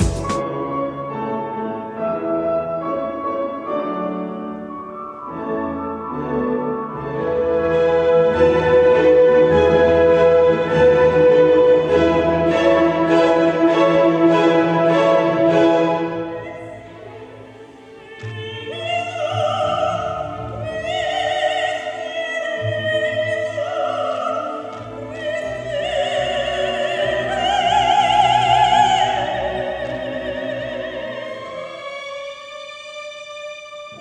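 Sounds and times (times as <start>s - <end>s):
string orchestra: 0.0s - 34.0s
soprano singing with vibrato: 15.2s - 34.0s.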